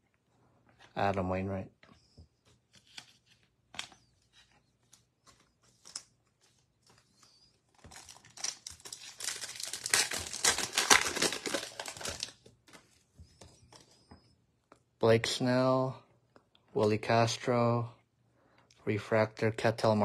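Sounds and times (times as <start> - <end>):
foil wrapper crinkling and tearing: 7.1 - 12.8.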